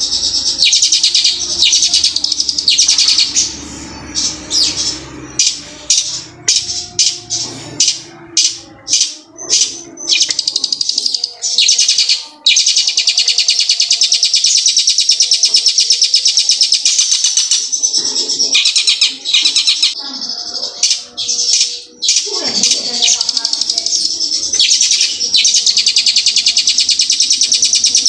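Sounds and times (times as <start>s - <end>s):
bird chirping and trilling: 0.0s - 28.0s.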